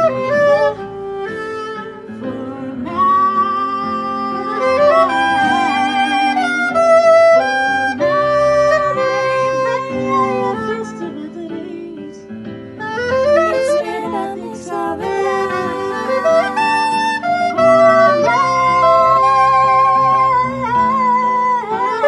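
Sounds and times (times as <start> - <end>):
musical accompaniment: 0.0 - 22.0
saxophone playing melodic lines: 0.0 - 22.0.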